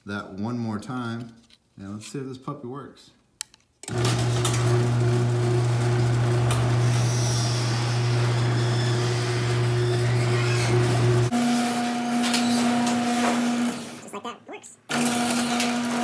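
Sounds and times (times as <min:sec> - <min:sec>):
garage door opener motor humming: 0:03.9 - 0:14.0, 0:14.9 - 0:16.0.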